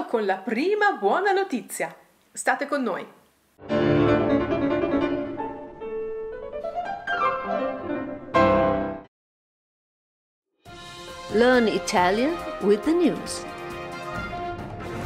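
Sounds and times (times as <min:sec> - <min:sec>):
instrumental intro jingle: 0:03.6 - 0:09.1.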